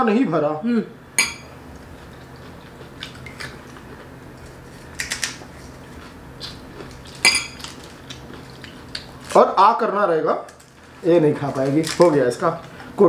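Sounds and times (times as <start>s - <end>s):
low steady hum: 0.0s - 13.0s
metal spoon clinking glass bowl: 1.2s - 1.5s, 7.2s - 7.6s.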